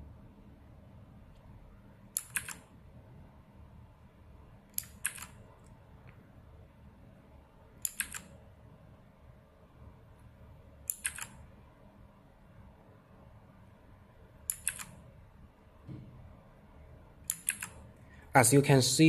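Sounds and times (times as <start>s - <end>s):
mechanical keyboard clicks: 2.2s - 2.6s, 4.8s - 5.4s, 7.8s - 8.3s, 10.9s - 11.4s, 14.5s - 15.0s, 17.3s - 17.8s.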